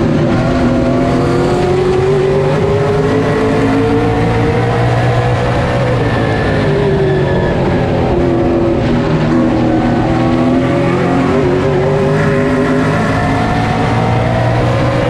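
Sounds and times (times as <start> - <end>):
race car engine at speed: 0.0 - 15.0.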